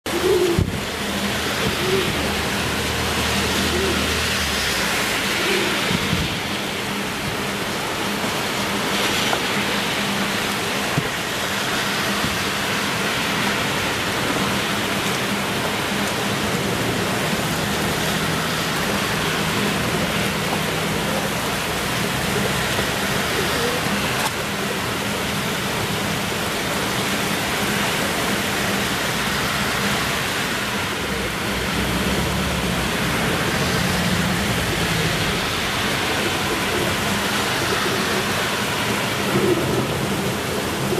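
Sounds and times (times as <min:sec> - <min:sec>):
heavy rain: 0:00.0 - 0:40.9
fountain spraying water: 0:00.1 - 0:40.9.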